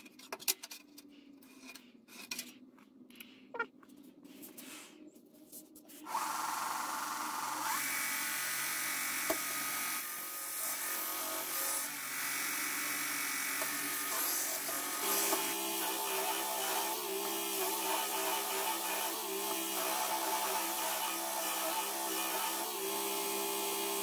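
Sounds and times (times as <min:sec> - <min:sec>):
belt grinder running: 0:06.1 - 0:24.0.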